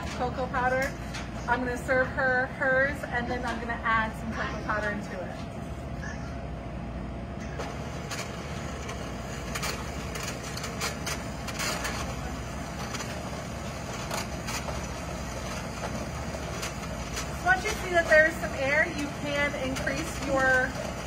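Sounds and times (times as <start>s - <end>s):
electric mixer whisking liquid: 7.6s - 21.0s.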